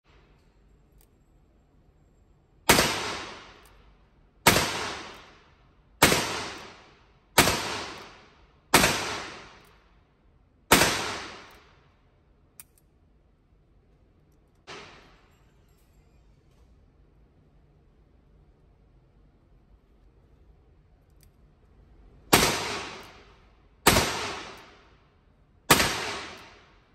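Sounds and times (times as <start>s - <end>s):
small click: 12.6s - 12.9s
revolver shots echoing: 22.3s - 24.8s, 25.7s - 26.7s.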